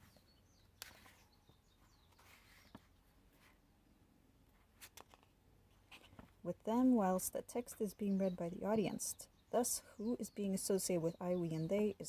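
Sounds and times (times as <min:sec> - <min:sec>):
soft rustle of pages: 0:00.0 - 0:03.7, 0:04.4 - 0:06.4.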